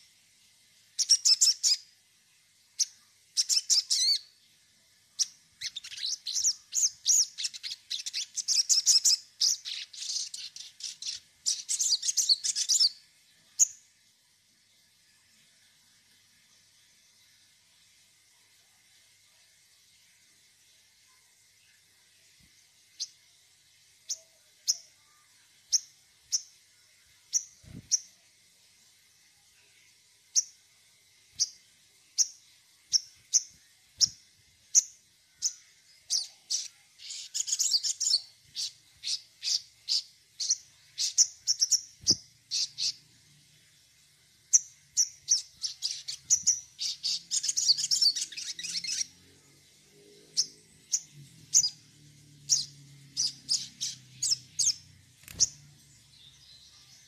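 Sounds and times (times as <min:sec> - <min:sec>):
songbird chirping: 0:00.0 - 0:57.0
bird rapid chattering: 0:45.0 - 0:49.0, 0:53.2 - 0:55.6.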